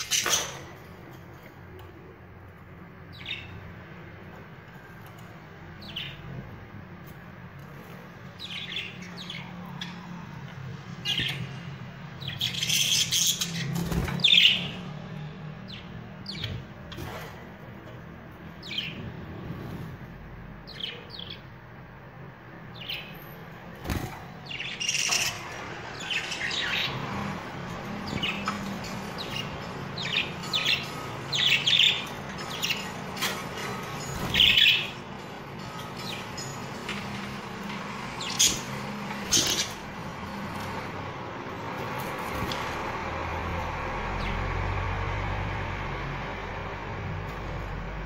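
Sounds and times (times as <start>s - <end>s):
budgerigars chirping: 23.8s - 27.2s, 38.2s - 39.8s.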